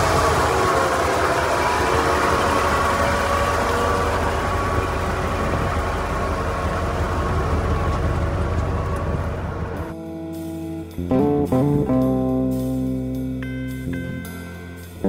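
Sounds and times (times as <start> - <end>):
truck engine idling: 0.0 - 10.0.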